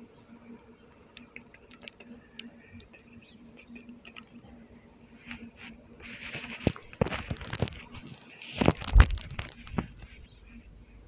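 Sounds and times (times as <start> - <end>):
microphone handling noise: 5.3 - 10.3.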